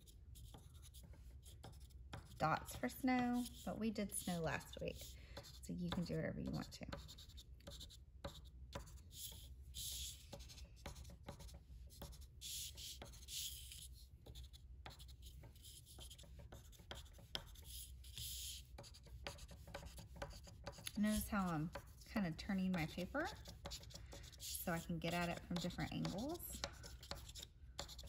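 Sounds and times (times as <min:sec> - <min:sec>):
chalk scratching and tapping on paper: 0:00.0 - 0:28.0.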